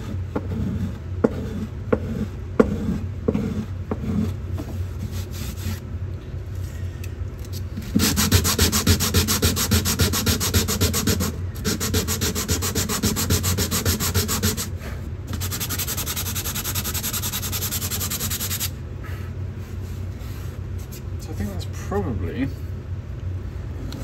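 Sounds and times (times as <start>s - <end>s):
sanding wood by hand: 0.0s - 4.4s, 7.9s - 18.7s.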